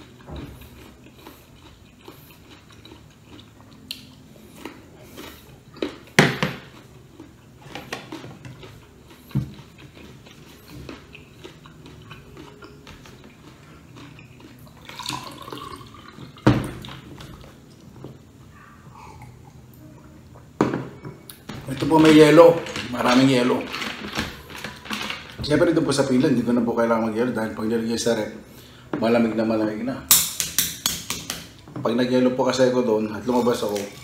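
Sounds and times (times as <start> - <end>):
chewing crunchy mango: 0.0 - 16.0.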